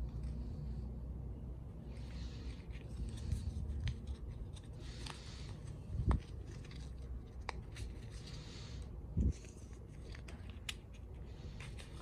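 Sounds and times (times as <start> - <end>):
cable and cardboard rustling: 2.0 - 8.4.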